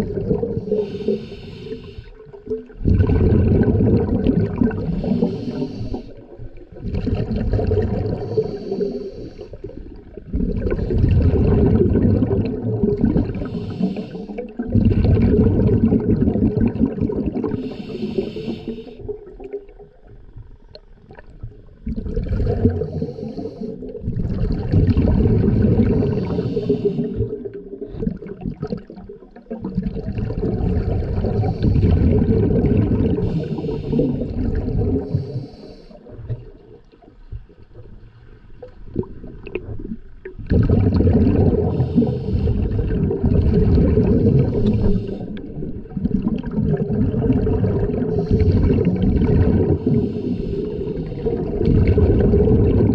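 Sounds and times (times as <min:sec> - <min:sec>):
exhaled bubbles gurgling: 0:00.0 - 0:52.9
regulator hissing inhalations: 0:00.6 - 0:02.2, 0:04.9 - 0:06.2, 0:08.2 - 0:09.7, 0:13.4 - 0:14.5, 0:17.5 - 0:19.0, 0:22.8 - 0:23.9, 0:26.1 - 0:27.4, 0:33.2 - 0:34.3, 0:35.1 - 0:36.1, 0:41.7 - 0:42.7, 0:44.4 - 0:45.4, 0:48.1 - 0:49.0, 0:49.8 - 0:51.3.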